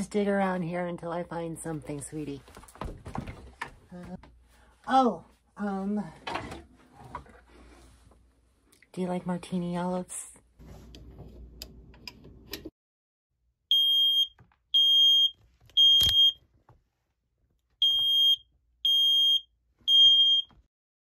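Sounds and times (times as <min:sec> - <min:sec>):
smoke alarm beeping: 0:13.7 - 0:16.4, 0:17.8 - 0:20.5.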